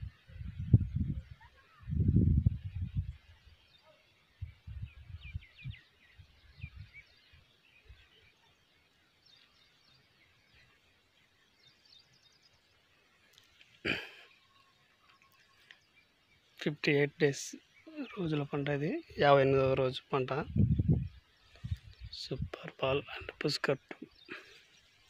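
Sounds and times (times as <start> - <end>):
faint bird chirps: 0.0 - 16.8.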